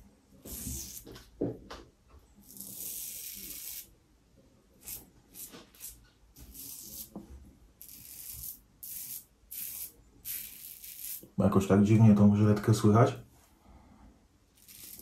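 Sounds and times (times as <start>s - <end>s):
razor scraping through stubble: 7.8s - 11.3s, 14.6s - 15.0s.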